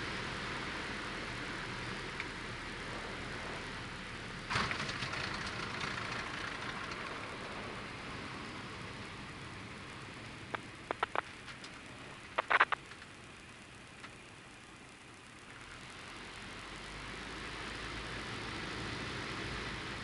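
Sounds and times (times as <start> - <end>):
rush of air and wheels: 0.0 - 12.8
light aircraft engine idling: 0.0 - 20.0.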